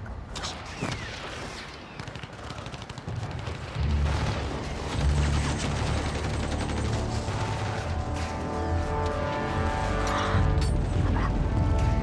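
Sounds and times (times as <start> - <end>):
rapid gunfire: 0.7 - 8.2.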